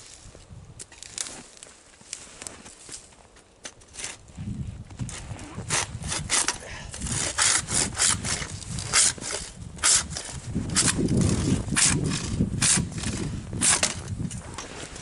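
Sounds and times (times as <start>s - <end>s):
hand saw cutting a limb: 5.4s - 14.6s.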